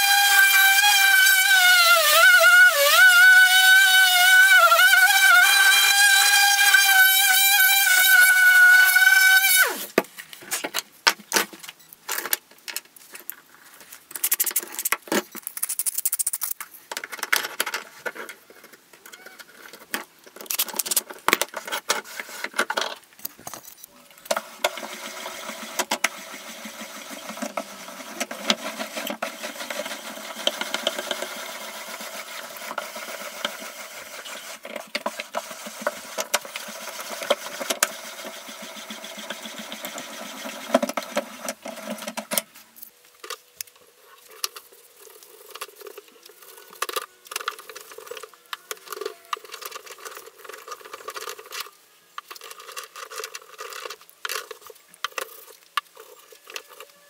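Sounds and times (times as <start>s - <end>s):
vise screw rattling whir: 0.0s - 9.8s, 24.3s - 42.5s.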